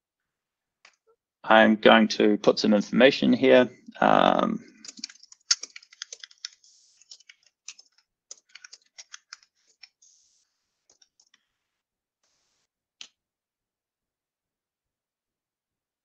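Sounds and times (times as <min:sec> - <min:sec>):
keyboard typing: 0:04.7 - 0:10.2, 0:10.8 - 0:11.4.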